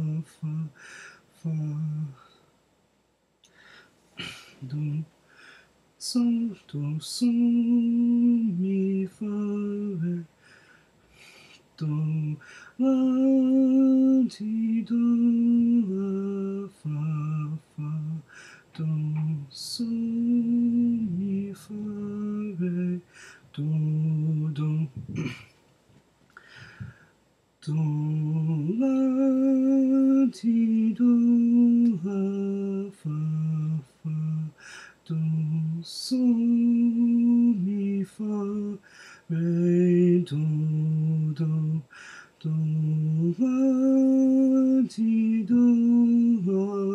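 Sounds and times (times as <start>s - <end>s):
man sight-singing: 4.2s - 5.1s.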